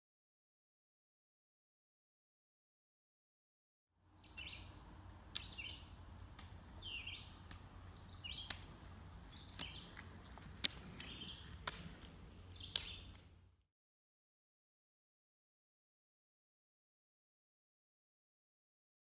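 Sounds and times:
low outdoor rumble: 4.0 - 13.6
ski pole tips clicking on asphalt: 7.4 - 13.3.

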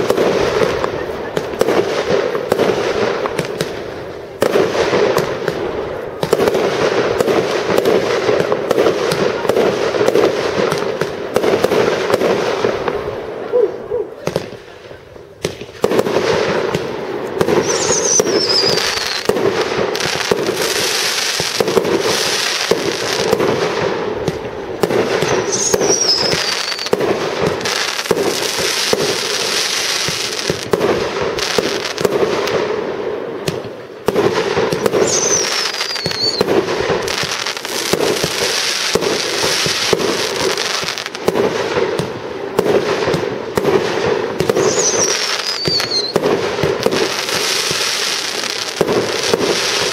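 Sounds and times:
fireworks bursts and crackle: 0.0 - 49.9
high falling firework whistle: 17.5 - 19.4, 25.2 - 27.0, 34.8 - 36.6, 44.5 - 46.2.

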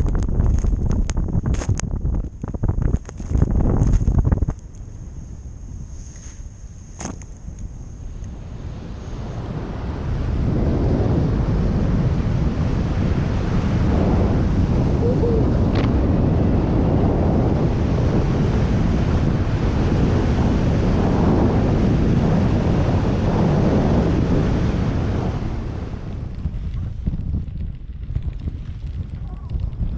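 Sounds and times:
wind rushing on microphone: 0.0 - 29.9
snowboard hissing through snow: 5.7 - 7.0.

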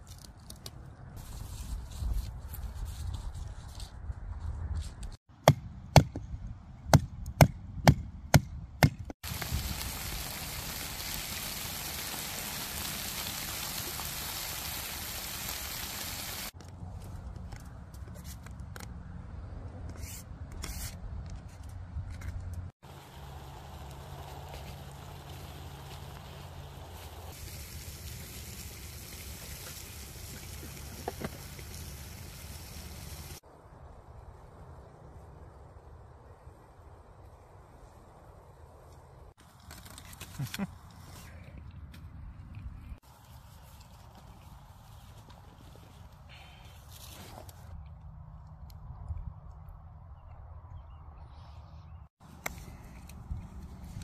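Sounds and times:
wind noise on microphone: 1.1 - 10.3
campfire hissing and crackling: 9.2 - 16.6, 22.8 - 33.5.

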